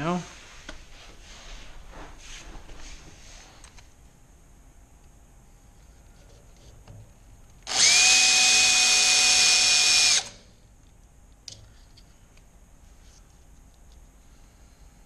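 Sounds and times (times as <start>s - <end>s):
power drill whining: 7.6s - 10.4s.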